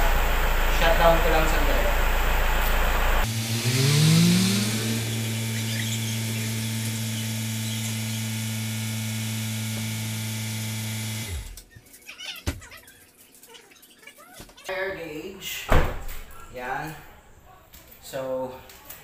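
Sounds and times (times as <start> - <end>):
car engine idling: 0.0 - 11.3.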